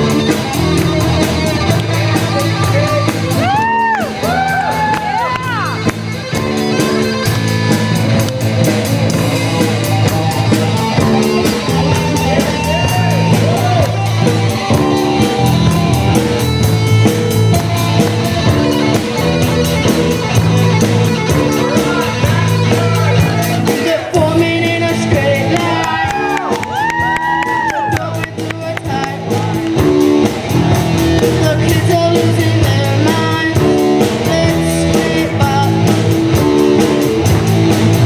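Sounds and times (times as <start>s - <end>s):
drum kit beat: 0.0s - 38.0s
electric bass: 0.0s - 38.0s
electric guitar: 0.0s - 38.0s
boy singing into a microphone: 31.4s - 35.9s.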